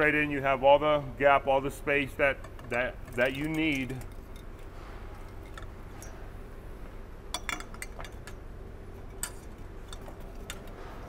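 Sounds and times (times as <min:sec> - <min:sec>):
steady low hum: 0:00.0 - 0:11.0
light metallic clicks and clinks: 0:02.4 - 0:06.3, 0:07.3 - 0:08.4, 0:09.0 - 0:10.8.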